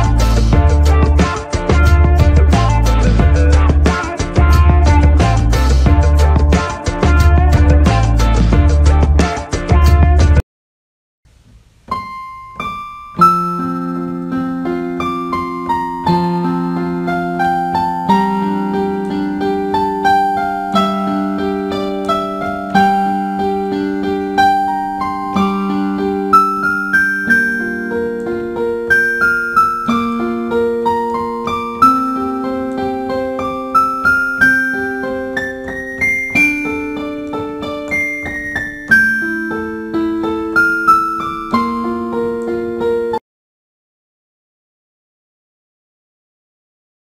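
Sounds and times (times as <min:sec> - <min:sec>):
slow solo piano: 0:11.9 - 0:43.2.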